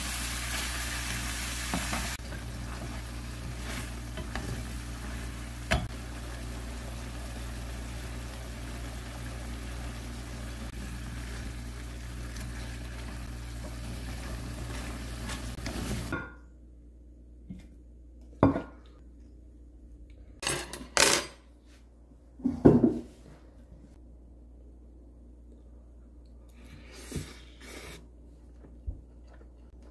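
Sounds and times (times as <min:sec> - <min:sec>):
food sizzling in a frying pan: 0:00.0 - 0:16.3
wooden spatula stirring: 0:01.6 - 0:05.8.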